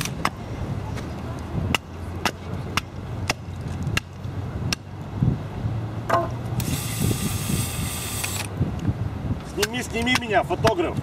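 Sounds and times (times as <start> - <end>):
drill driving screw into wood: 6.6 - 8.5.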